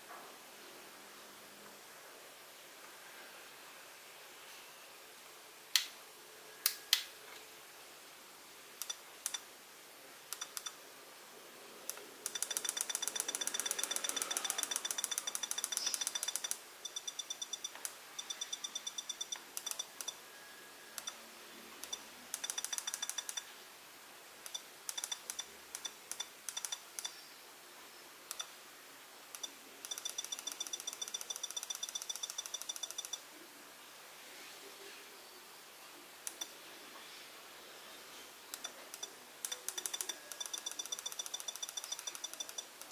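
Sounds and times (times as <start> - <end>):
radio transmitter beeps: 12.3 - 20.2, 29.9 - 33.2, 38.6 - 42.7.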